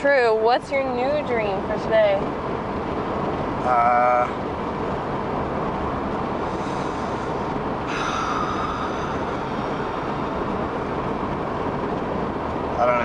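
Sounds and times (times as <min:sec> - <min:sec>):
car cabin road and engine noise: 0:00.0 - 0:13.0.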